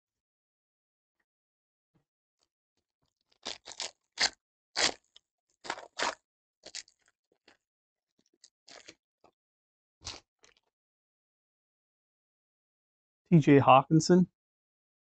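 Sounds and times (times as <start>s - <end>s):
foil wrapper crinkling and tearing: 3.3s - 7.6s, 8.4s - 8.9s.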